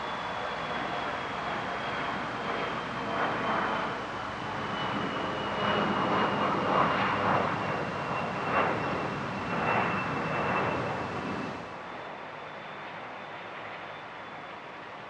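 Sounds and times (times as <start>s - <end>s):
steady rushing noise: 0.0s - 11.8s
jet engine roar with whine: 0.0s - 15.0s.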